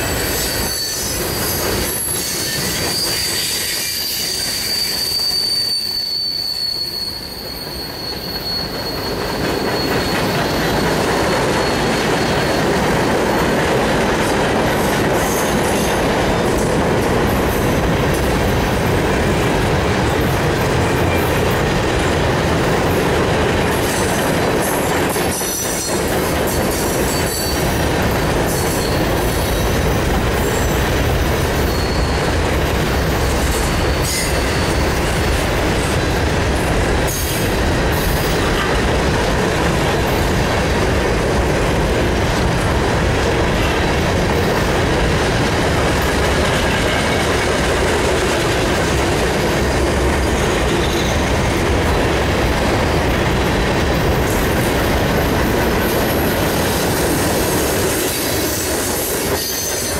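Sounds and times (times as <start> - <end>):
high wheel squeal: 0.0 - 13.6, 24.7 - 32.5, 33.2 - 36.1, 49.3 - 51.6, 56.6 - 59.9
train wheels rumbling on rail: 0.0 - 59.9.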